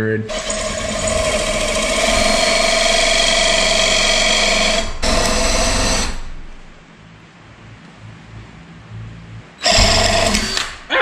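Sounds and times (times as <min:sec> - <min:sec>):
cordless drill shaving wood: 0:00.3 - 0:06.7, 0:09.6 - 0:10.8.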